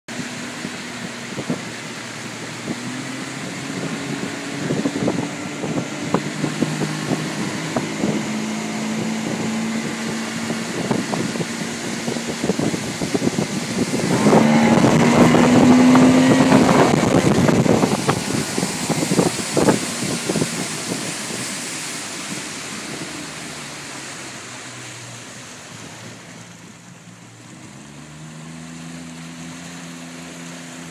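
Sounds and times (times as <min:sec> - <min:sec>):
outboard motor running: 0:00.1 - 0:30.9
water rushing in wake: 0:00.1 - 0:30.9
wind buffeting: 0:00.2 - 0:24.4.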